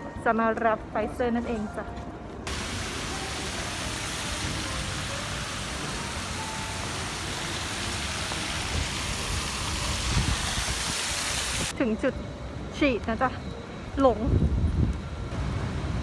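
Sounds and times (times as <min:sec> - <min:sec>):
fountain water splashing: 0:02.5 - 0:11.7.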